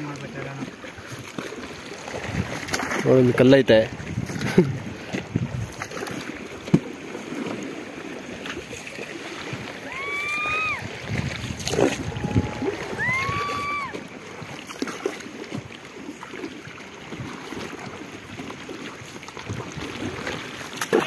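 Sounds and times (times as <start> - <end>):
river water splashing: 0.0 - 21.0
wind on microphone: 2.0 - 3.1, 3.8 - 6.7, 9.4 - 14.6.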